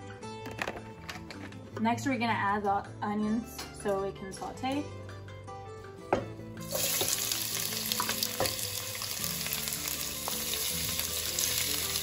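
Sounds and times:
onions sizzling in hot oil: 0:06.6 - 0:12.0.

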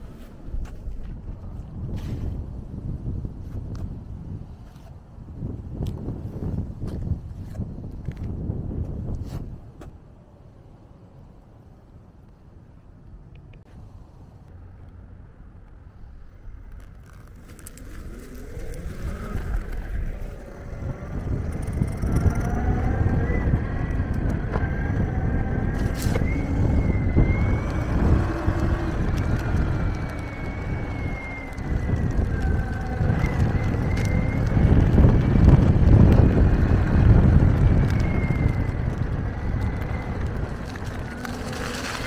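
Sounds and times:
wind on microphone: 0:00.0 - 0:12.1, 0:15.4 - 0:42.0
tyres rumbling on pavement: 0:15.4 - 0:42.0
electric motor whine: 0:17.4 - 0:42.0.

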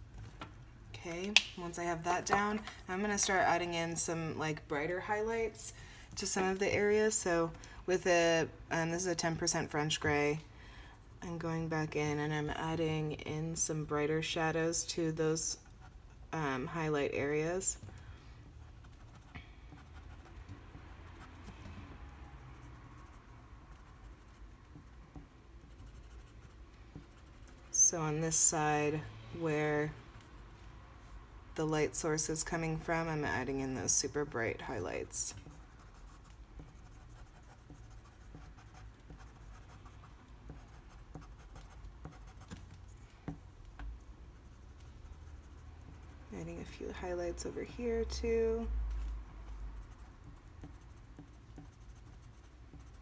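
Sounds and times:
colored pencil scratching on paper: 0:12.0 - 0:17.8, 0:18.5 - 0:29.0, 0:32.1 - 0:43.6, 0:44.2 - 0:48.7, 0:49.5 - 0:53.0.

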